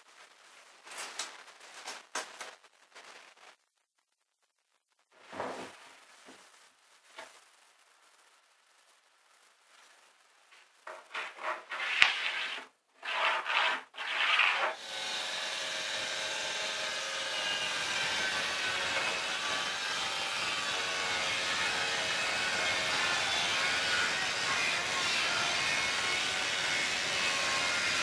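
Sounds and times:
short scrapes: 0:10.9 - 0:14.8
circular saw cutting plywood: 0:10.9 - 0:28.0.

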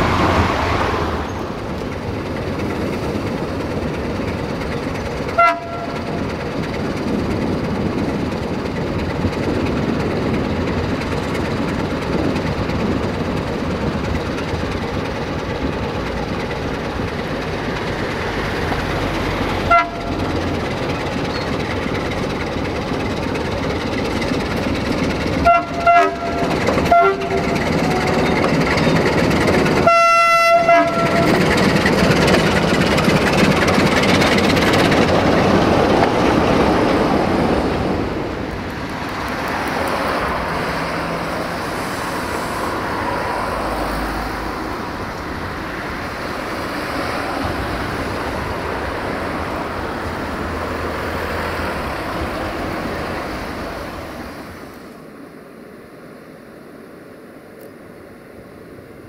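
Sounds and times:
train wheels rumbling on rails: 0:00.0 - 0:55.8
train horn blasts: 0:05.3 - 0:06.2, 0:19.6 - 0:20.4, 0:25.4 - 0:28.6, 0:29.6 - 0:31.6.

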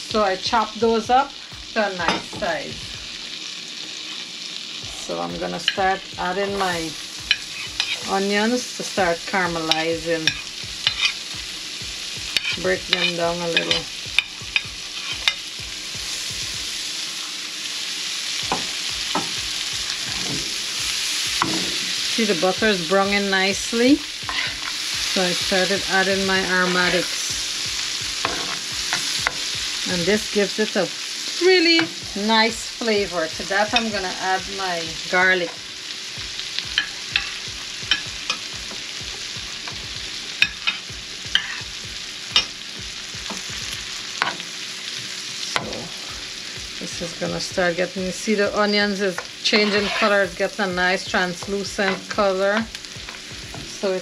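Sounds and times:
onions sizzling in butter: 0:00.0 - 0:54.0.

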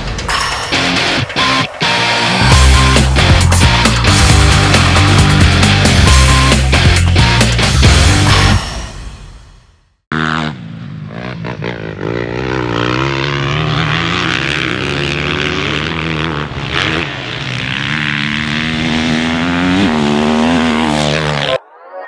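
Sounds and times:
dirt bike engine revving: 0:01.3 - 0:08.6, 0:10.1 - 0:21.6.

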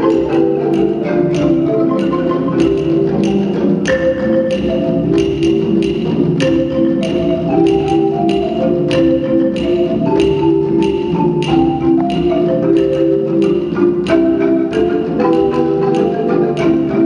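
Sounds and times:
hand drum strokes: 0:00.0 - 0:17.0
marimba patterns: 0:00.0 - 0:17.0.

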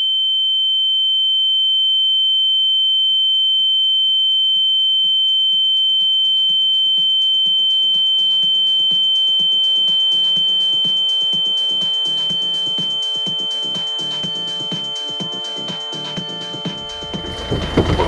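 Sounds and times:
music with a beat: 0:08.1 - 0:18.0
high-pitched electronic tone: 0:08.9 - 0:18.0.

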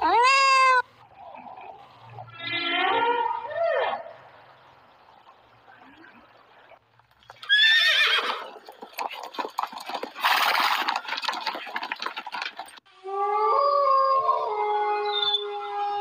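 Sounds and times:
clatter of hooves: 0:06.9 - 0:12.9
horse neighing: 0:07.4 - 0:08.6
wolves howling: 0:13.0 - 0:16.0.

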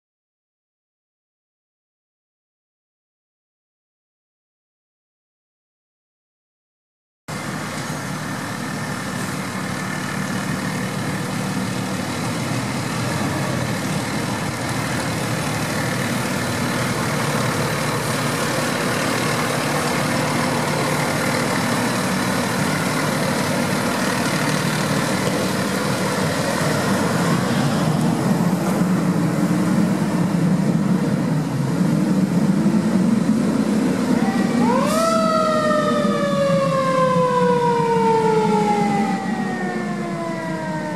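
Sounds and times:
fire engine diesel engine: 0:07.3 - 0:40.9
siren rising and falling: 0:33.8 - 0:40.9.

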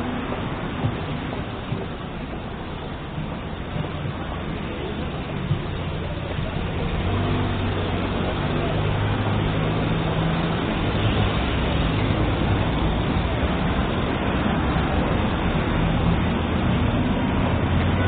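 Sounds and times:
road traffic noise: 0:00.0 - 0:18.0
vehicle engine humming: 0:00.0 - 0:18.0.

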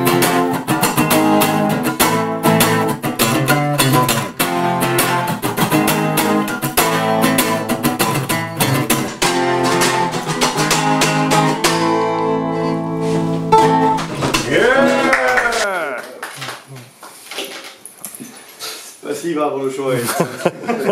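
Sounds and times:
guitars strumming chords: 0:00.0 - 0:15.6
rising-and-falling cry: 0:14.5 - 0:16.2.

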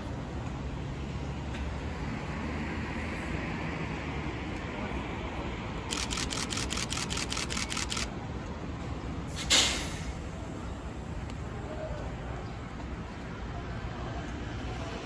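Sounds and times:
fast run of clicks: 0:05.9 - 0:08.1.

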